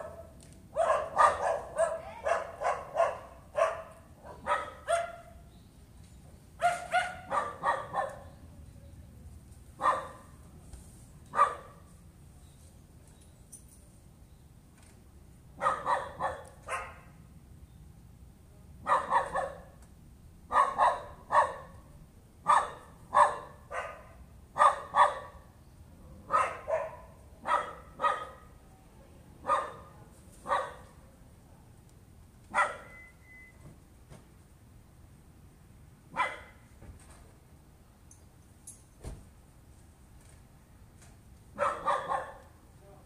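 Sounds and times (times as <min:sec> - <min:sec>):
dog barking: 0:00.0 - 0:05.4, 0:06.6 - 0:08.3, 0:09.8 - 0:10.3, 0:11.3 - 0:11.8, 0:15.6 - 0:17.2, 0:18.8 - 0:19.8, 0:20.5 - 0:21.8, 0:22.4 - 0:25.4, 0:26.2 - 0:28.5, 0:29.4 - 0:31.0, 0:32.5 - 0:33.1, 0:36.1 - 0:36.6, 0:41.6 - 0:42.5.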